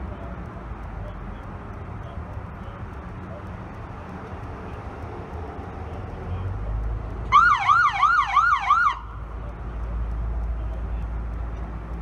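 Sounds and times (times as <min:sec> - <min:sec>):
low vehicle hum: 0:00.0 - 0:12.0
police siren yelp: 0:07.3 - 0:09.1.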